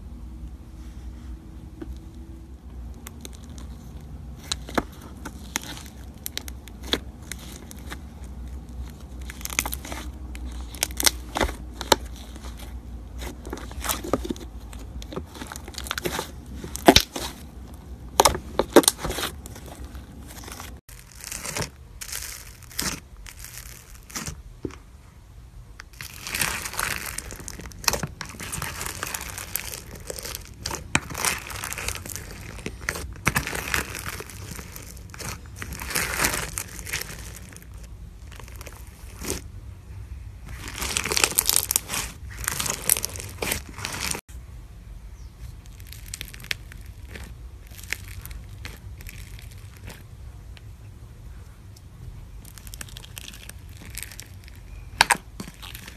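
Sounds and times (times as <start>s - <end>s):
crunchy crackling of bead slime: 1.6s - 24.9s, 25.6s - 44.3s, 45.1s - 55.9s
hands squishing slime: 2.1s - 24.4s, 25.9s - 39.5s, 40.4s - 44.2s.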